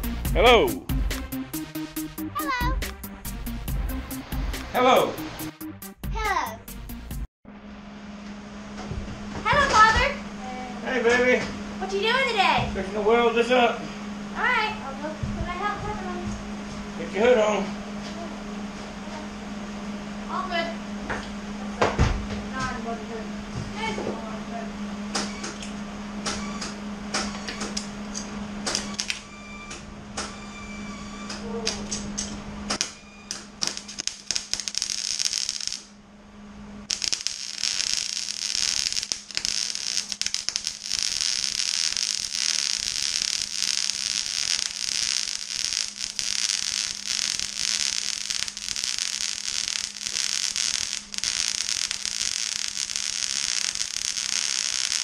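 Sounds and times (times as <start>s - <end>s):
welding arc crackling: 0.0s - 5.9s, 28.7s - 29.2s, 32.7s - 35.9s, 36.9s - 55.0s.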